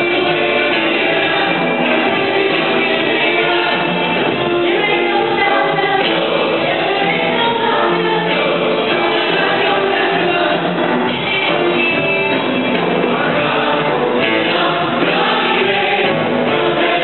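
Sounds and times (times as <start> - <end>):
choir singing: 0.0 - 17.0
strummed guitars: 0.0 - 17.0
woman singing into a microphone: 4.5 - 12.4.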